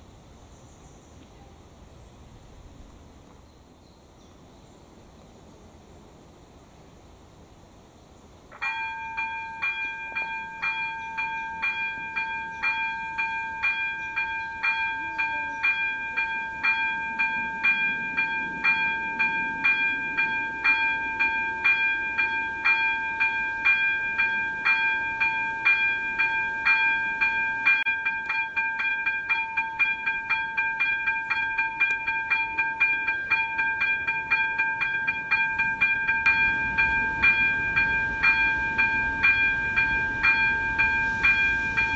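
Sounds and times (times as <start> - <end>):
electronic crossing bell ringing: 8.6 - 41.9.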